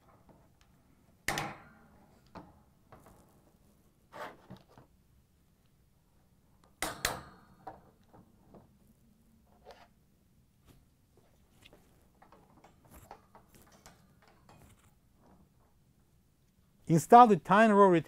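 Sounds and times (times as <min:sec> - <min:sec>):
wire rack clicking and knocking: 0:06.8 - 0:08.0, 0:12.2 - 0:15.5.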